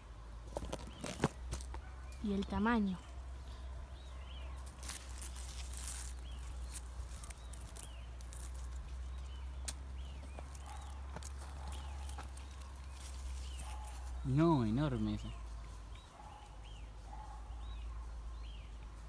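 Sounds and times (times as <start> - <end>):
leaves rustling and stems snapping: 4.6 - 14.2.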